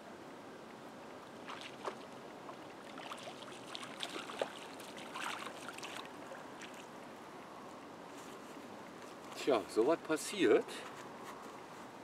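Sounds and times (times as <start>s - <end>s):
water splashing and trickling: 1.2s - 7.9s.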